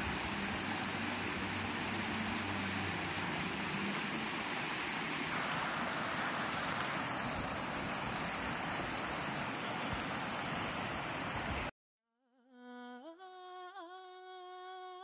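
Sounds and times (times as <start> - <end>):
mountain stream rushing over rocks: 0.0 - 11.7.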